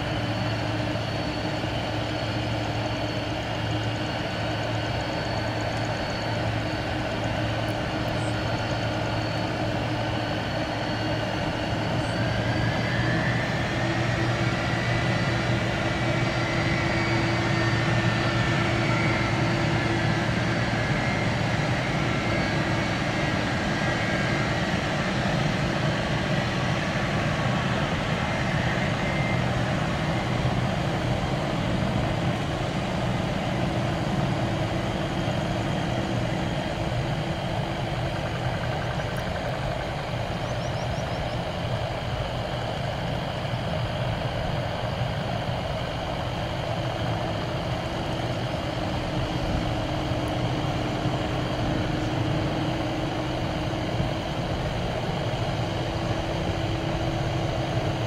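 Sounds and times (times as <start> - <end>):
jet engines rumbling at taxi: 0.0 - 58.0.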